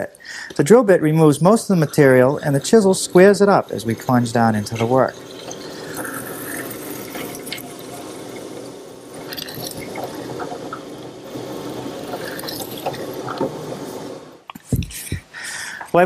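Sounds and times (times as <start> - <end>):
wood chips clicking: 9.2 - 13.6.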